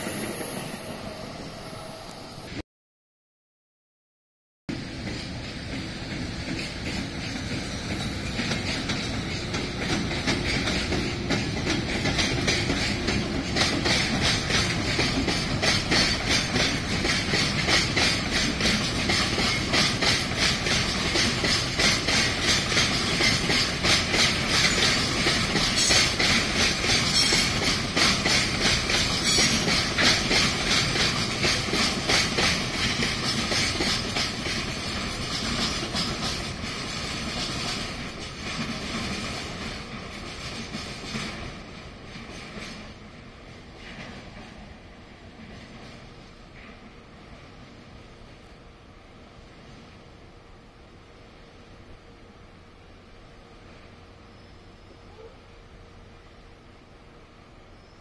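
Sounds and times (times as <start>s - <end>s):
high wheel squeals: 0.0s - 2.5s
train wheels clattering over rails: 4.7s - 47.6s.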